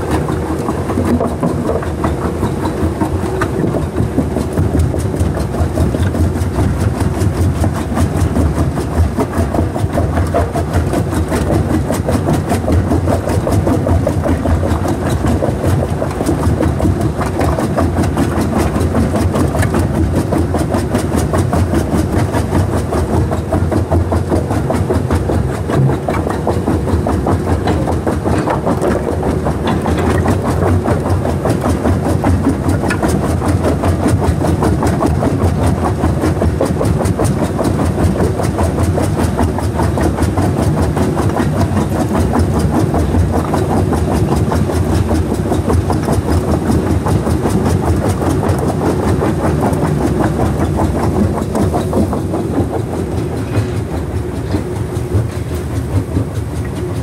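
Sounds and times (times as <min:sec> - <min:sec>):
crusher engine humming: 0:00.0 - 0:57.0
rubble clattering and rattling: 0:00.0 - 0:57.0.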